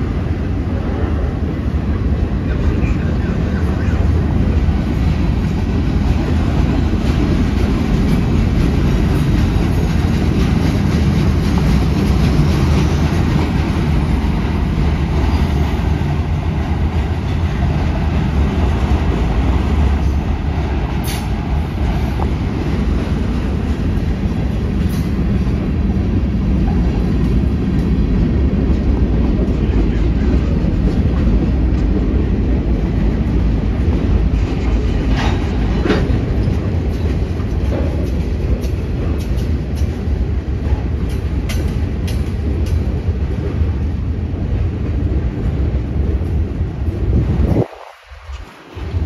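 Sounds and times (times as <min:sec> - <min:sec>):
steel wheels rumbling on rail: 0:00.0 - 0:49.0
sharp clacks: 0:40.7 - 0:42.9.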